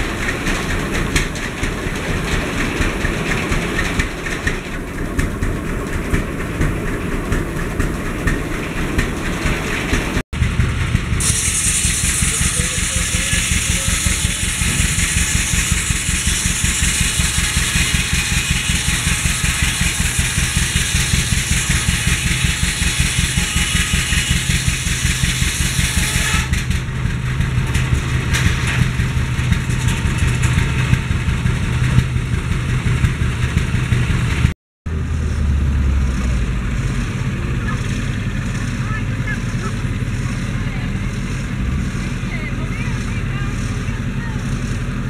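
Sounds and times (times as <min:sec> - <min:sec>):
circular saw rushing noise: 0:00.0 - 0:45.0
old engine running: 0:00.0 - 0:45.0.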